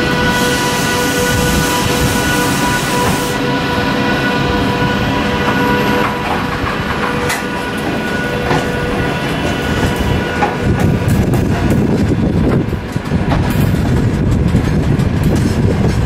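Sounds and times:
train rumble: 0:00.0 - 0:16.0
wheels clicking over rails: 0:05.5 - 0:16.0.

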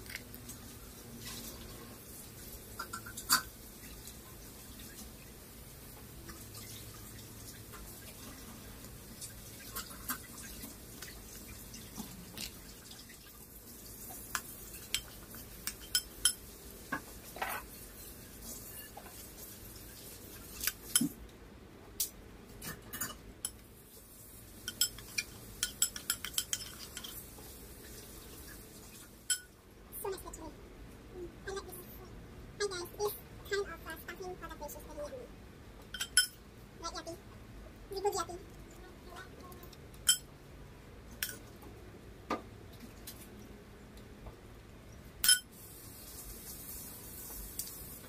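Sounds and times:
low steady hiss: 0:00.0 - 0:48.0
metal spoon clinking on ceramic bowl: 0:15.7 - 0:16.4, 0:24.7 - 0:27.2, 0:29.3 - 0:29.5, 0:36.0 - 0:36.4, 0:40.1 - 0:40.3, 0:45.2 - 0:45.5.

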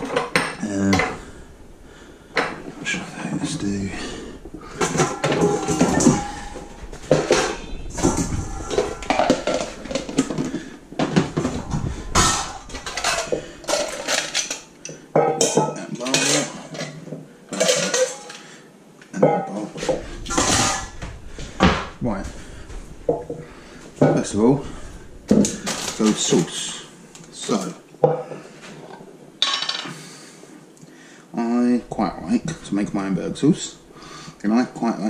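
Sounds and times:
metal kitchenware clattering: 0:00.0 - 0:18.5, 0:19.2 - 0:26.8, 0:29.4 - 0:30.0.

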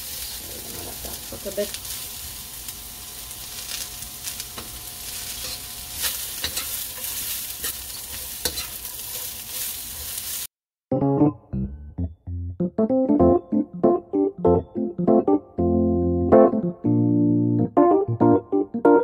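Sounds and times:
vegetables sizzling in oil: 0:00.0 - 0:10.5
metal spatula scraping pan: 0:05.3 - 0:10.4.

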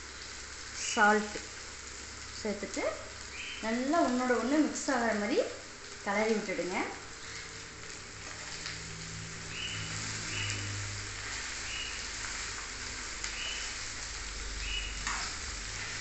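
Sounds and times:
okra sizzling in oil: 0:00.0 - 0:16.0
spatula scraping a pan: 0:15.0 - 0:16.0.

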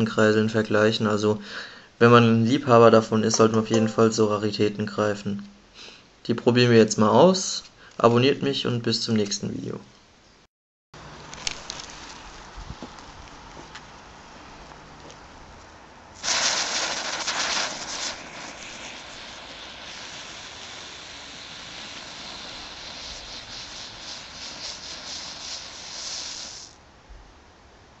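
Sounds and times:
ground-spinner firework hissing: 0:11.0 - 0:13.2, 0:16.2 - 0:26.8.

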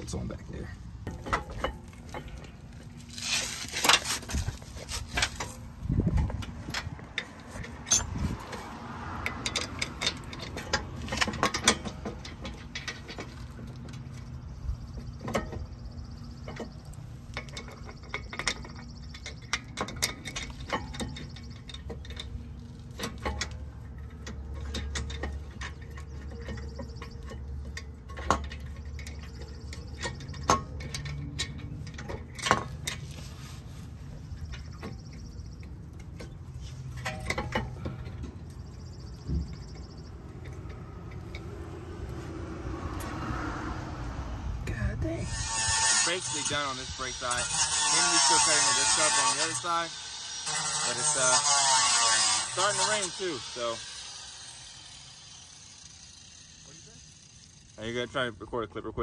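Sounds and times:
metal parts clinking and tapping: 0:01.0 - 0:14.4, 0:15.0 - 0:33.2, 0:34.2 - 0:41.6.

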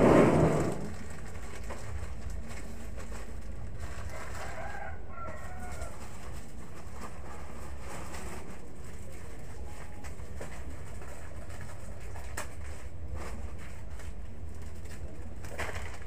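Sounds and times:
steady low hum: 0:00.0 - 0:04.2
rooster crowing faintly: 0:04.0 - 0:06.4.

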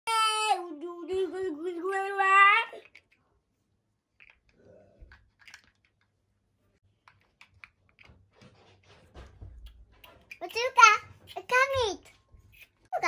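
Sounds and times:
plastic blocks clicking: 0:04.2 - 0:06.1.

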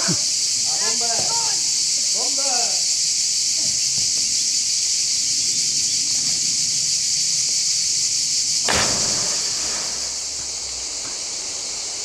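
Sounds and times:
high-pitched insect chorus: 0:00.0 - 0:12.0
splash into river: 0:08.6 - 0:11.0.

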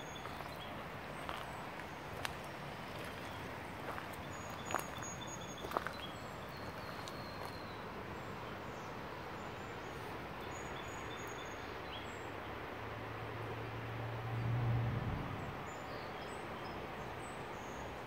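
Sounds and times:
river rushing: 0:00.0 - 0:07.0.

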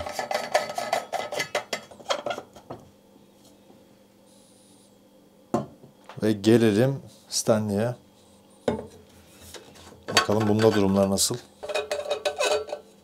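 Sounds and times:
metal flask clinks and scrapes: 0:11.6 - 0:12.9.

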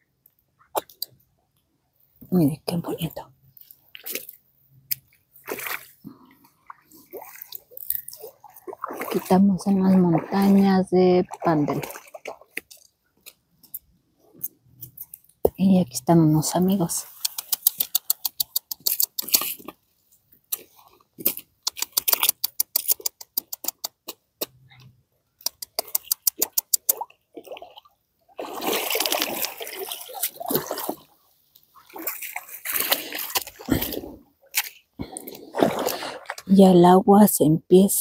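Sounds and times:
water splashing at pond edge: 0:02.3 - 0:13.4, 0:16.2 - 0:19.9, 0:20.5 - 0:24.6, 0:25.4 - 0:36.7.

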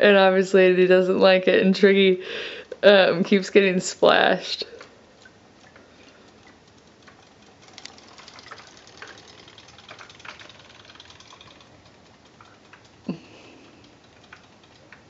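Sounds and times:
toy fish tail ticking: 0:04.8 - 0:15.0.

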